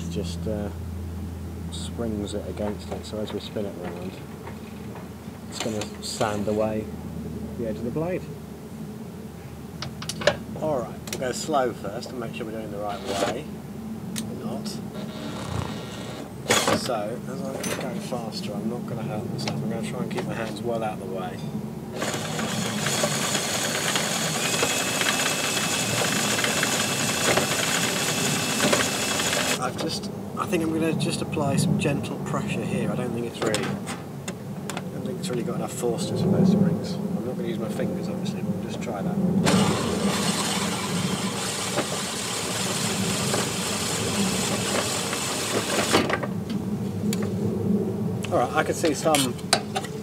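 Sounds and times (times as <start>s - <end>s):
faint high whine: 0.0s - 34.0s
low hum: 0.0s - 50.0s
drill spinning mower reel: 12.8s - 13.4s, 14.9s - 16.9s, 21.9s - 29.7s, 39.4s - 46.2s
abrasive grinding hiss: 14.4s - 17.1s, 21.3s - 29.8s, 39.4s - 46.1s.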